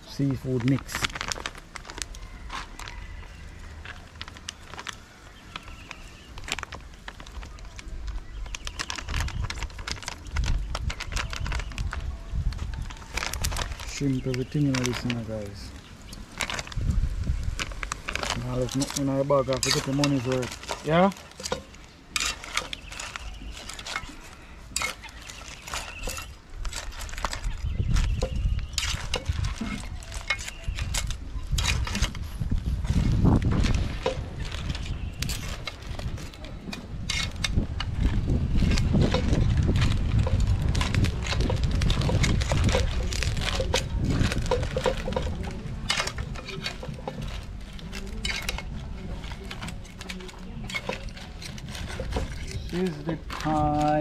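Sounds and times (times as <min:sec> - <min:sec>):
crab shells clattering: 0:00.2 - 0:54.0
metal spoon scraping metal pot: 0:18.5 - 0:32.2, 0:40.2 - 0:54.0.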